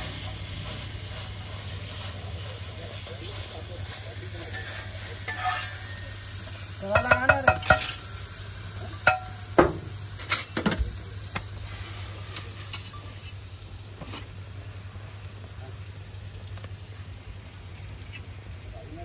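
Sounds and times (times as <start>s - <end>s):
hot oil sizzling: 0.0s - 19.0s
steel utensils clinking and scraping: 3.4s - 8.2s, 8.9s - 9.4s, 10.2s - 10.6s, 12.3s - 13.4s.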